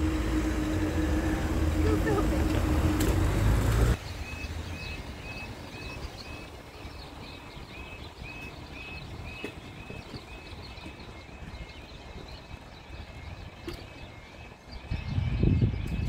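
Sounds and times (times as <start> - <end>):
car passing close by: 0.0 - 5.2.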